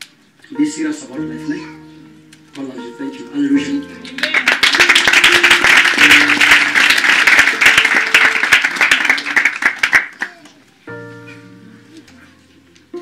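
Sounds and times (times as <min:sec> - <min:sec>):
music with held notes: 0:00.0 - 0:08.0, 0:10.7 - 0:13.0
crowd clapping: 0:04.0 - 0:10.7.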